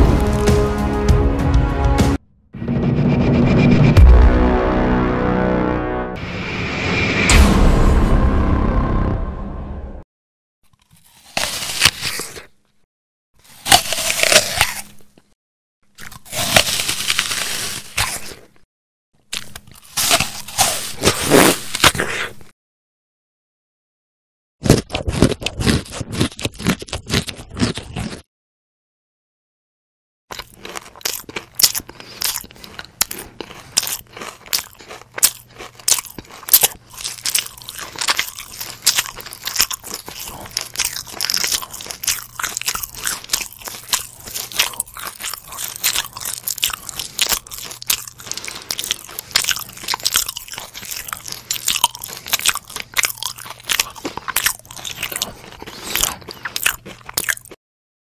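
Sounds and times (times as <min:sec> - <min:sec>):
person chewing crunchy food: 0:10.6 - 0:12.8, 0:13.4 - 0:18.6, 0:19.2 - 0:22.5, 0:24.6 - 0:28.3, 0:30.3 - 0:57.6.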